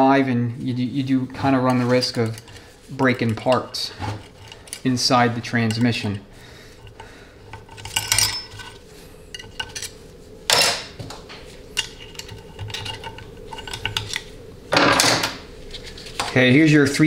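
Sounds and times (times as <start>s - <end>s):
small metal parts clinking: 7.6s - 10.8s.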